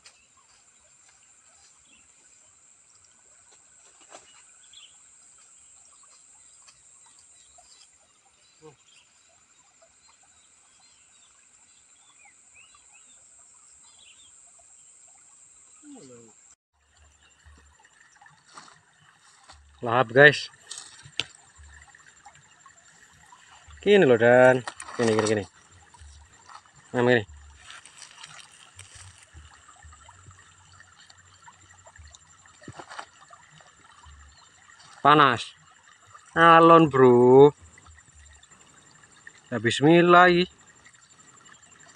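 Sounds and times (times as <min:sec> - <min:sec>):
faint bird chirps: 0:04.2 - 0:16.4.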